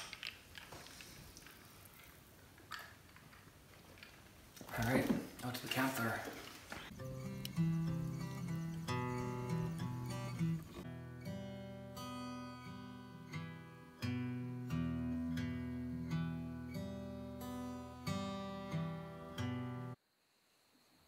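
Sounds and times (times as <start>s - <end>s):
acoustic guitar slow tune: 6.8s - 20.0s.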